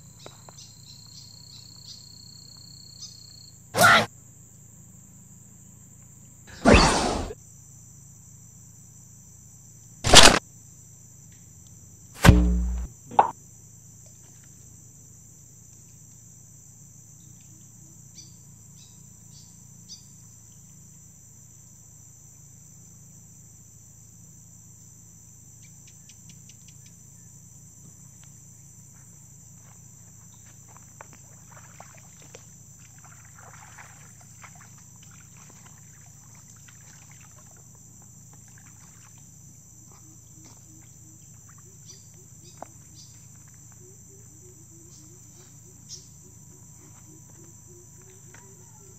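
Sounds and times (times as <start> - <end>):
crickets and insects chirping: 0.0 - 48.9
low steady hum: 12.2 - 13.3.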